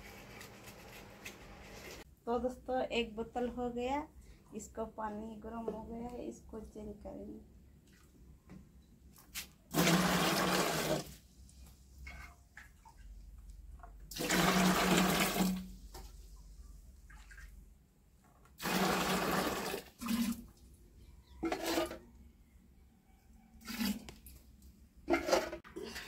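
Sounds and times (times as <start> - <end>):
water splashing as poured: 9.7 - 11.2, 14.1 - 15.7, 18.6 - 20.5, 23.6 - 24.1.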